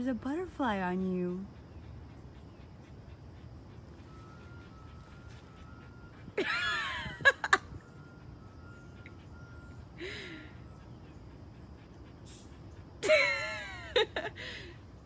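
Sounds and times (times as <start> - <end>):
woman laughing: 6.4 - 7.8, 13.0 - 14.8.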